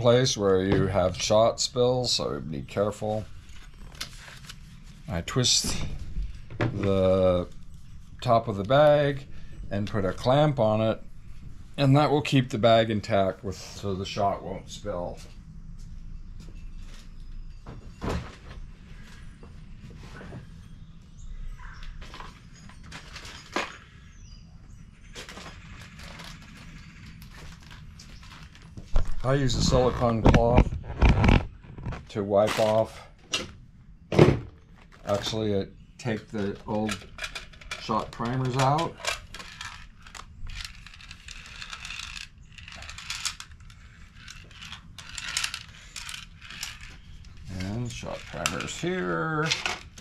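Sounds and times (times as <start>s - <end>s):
low steady hum: 0.0s - 50.0s
clicks and rustles of handling: 21.8s - 24.0s, 25.1s - 33.6s, 34.7s - 50.0s.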